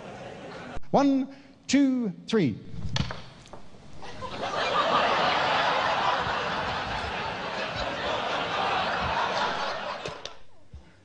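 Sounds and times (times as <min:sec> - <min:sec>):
audience laughing: 0:00.0 - 0:00.8, 0:04.0 - 0:10.4.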